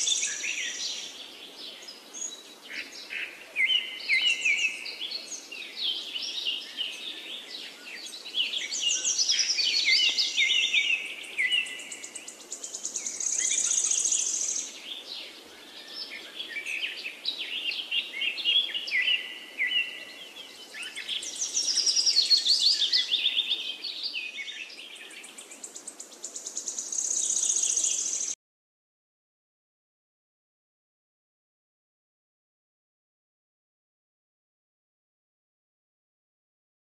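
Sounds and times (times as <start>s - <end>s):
birds chirping: 0.0s - 28.4s.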